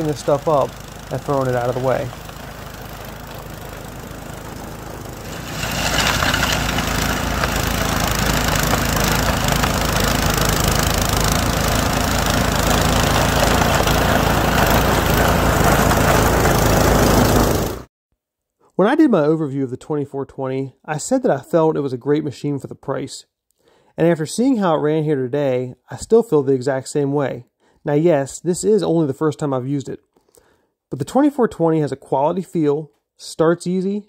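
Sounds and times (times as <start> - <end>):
snowblower engine running: 0.0 - 17.9.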